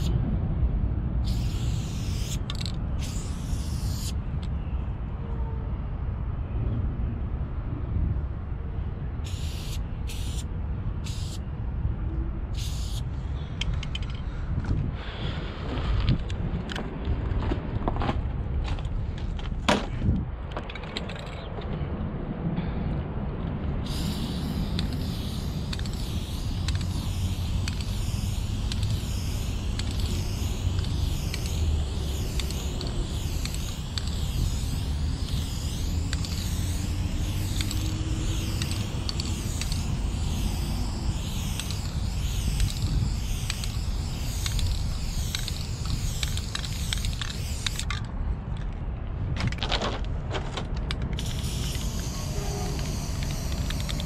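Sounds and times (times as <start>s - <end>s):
spray paint can hissing: 0.0s - 0.2s, 1.2s - 4.3s, 9.2s - 11.4s, 12.5s - 14.1s, 23.8s - 48.1s, 50.9s - 54.0s.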